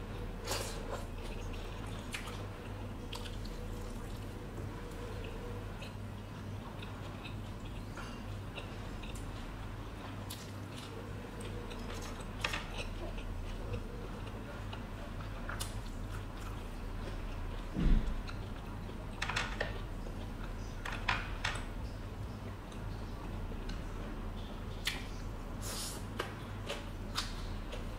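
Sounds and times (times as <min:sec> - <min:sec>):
steady low hum: 0:00.0 - 0:27.9
person chewing food: 0:00.1 - 0:20.8.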